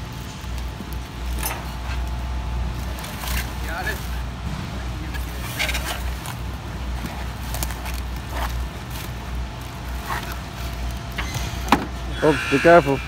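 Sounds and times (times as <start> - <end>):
steady low rumble: 0.0 - 12.2
cardboard rustling and scraping: 5.1 - 12.0.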